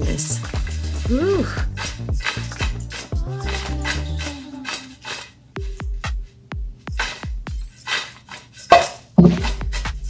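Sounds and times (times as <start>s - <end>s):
background music with bass and beat: 0.0s - 4.6s, 5.6s - 7.9s, 9.2s - 10.0s
fried potatoes rattling in metal bowl: 0.0s - 5.4s, 6.9s - 9.8s.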